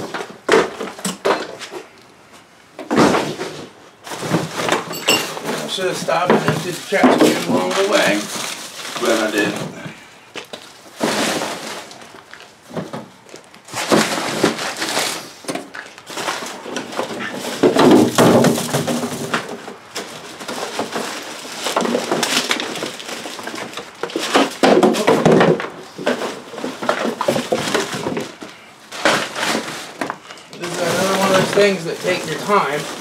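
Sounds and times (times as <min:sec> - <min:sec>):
trash crunching and rustling: 0:00.0 - 0:33.0.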